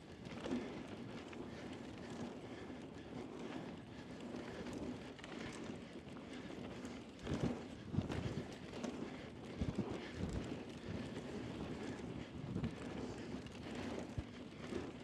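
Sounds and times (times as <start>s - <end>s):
bike tyres rolling on dirt: 0.1s - 15.0s
bike rattling: 12.8s - 14.9s.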